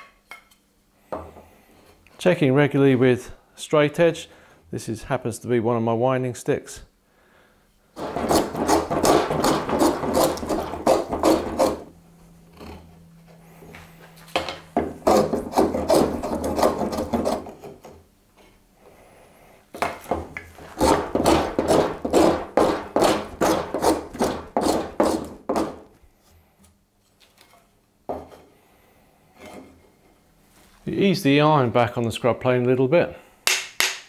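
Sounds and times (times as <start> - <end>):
hand plane shaving wood: 8.0 - 11.9, 15.0 - 17.6, 20.6 - 25.9.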